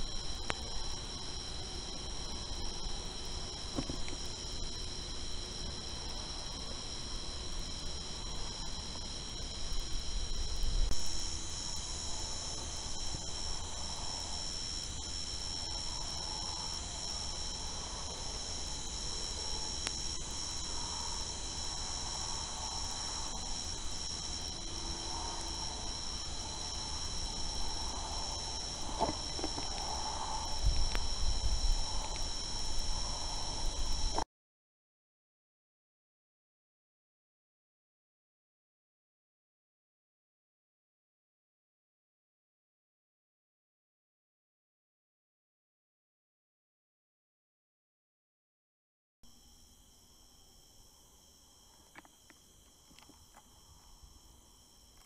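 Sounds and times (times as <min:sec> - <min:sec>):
night insect chorus trilling: 0:00.0 - 0:34.2, 0:49.2 - 0:55.0.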